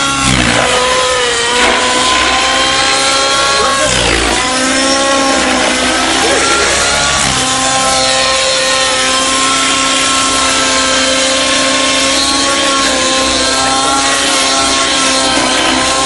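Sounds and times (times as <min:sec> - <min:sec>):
rc helicopter engine and rotors: 0:00.0 - 0:16.0.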